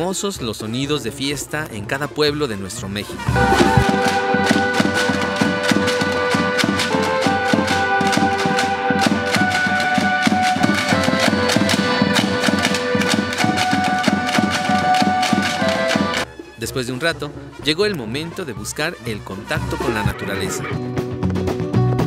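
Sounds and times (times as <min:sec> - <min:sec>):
melody of held notes: 0:03.4 - 0:16.2
fast percussive clicks: 0:03.4 - 0:16.3.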